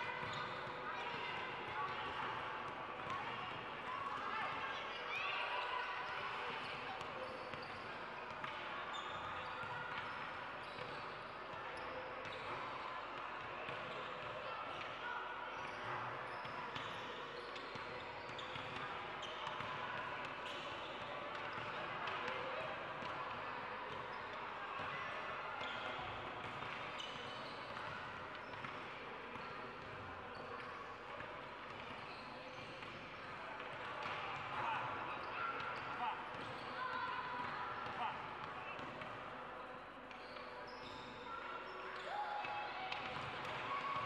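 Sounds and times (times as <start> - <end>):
hubbub of voices: 0.0 - 44.0
basketball bouncing on court: 21.4 - 22.4, 35.7 - 36.7.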